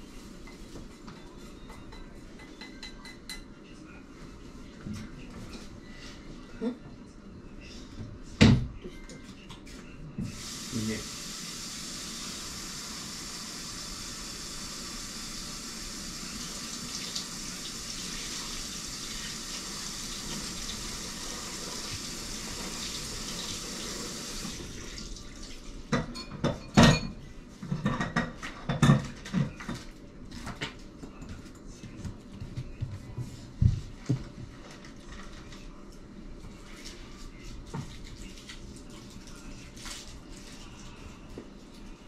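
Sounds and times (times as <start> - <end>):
tap water running: 10.3 - 25.6.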